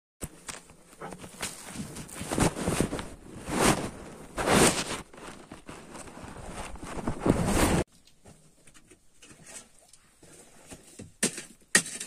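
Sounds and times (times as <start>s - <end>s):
footsteps crunching on stony ground: 0.2s - 7.6s.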